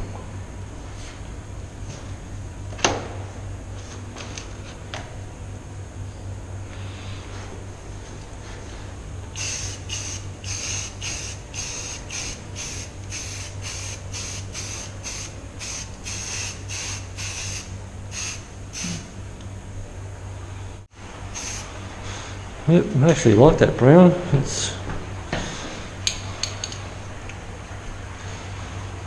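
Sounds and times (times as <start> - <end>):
low steady hum: 0.0 - 29.0
spray can hissing bursts: 9.4 - 19.0, 21.3 - 21.7.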